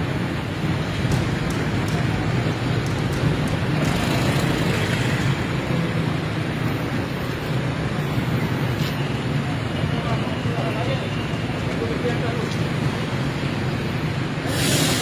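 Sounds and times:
tyres hissing on wet road: 0:12.9 - 0:15.0.

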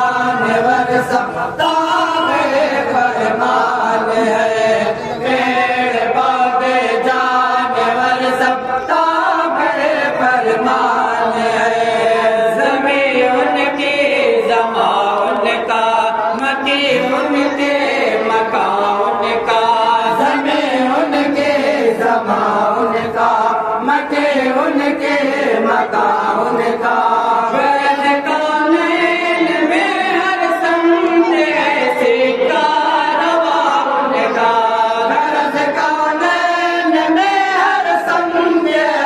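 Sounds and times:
voice through a microphone: 0:00.0 - 0:05.8, 0:07.3 - 0:20.5, 0:27.2 - 0:35.0
men chanting in unison: 0:00.0 - 0:39.0.

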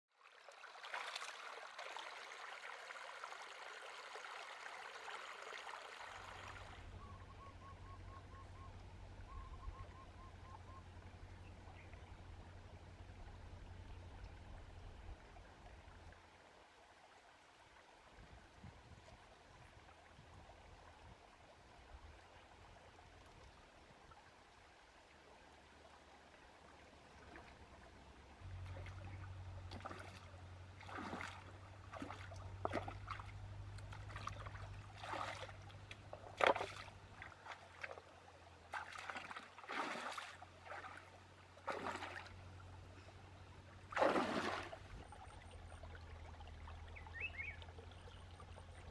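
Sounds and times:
stream trickling: 0:00.1 - 0:48.9
feet wading through water: 0:00.2 - 0:07.2, 0:27.0 - 0:48.9.

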